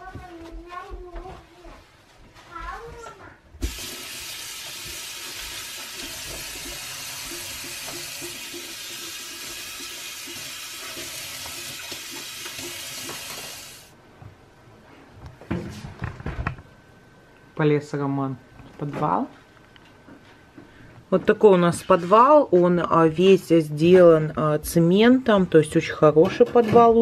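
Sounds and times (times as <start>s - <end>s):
tap water splashing into sink: 3.6s - 13.8s.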